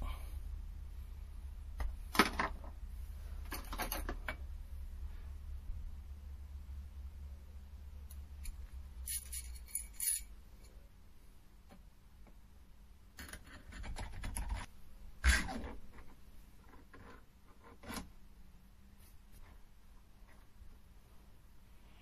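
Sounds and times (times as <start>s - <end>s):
light metal clinks: 8.4s - 10.4s.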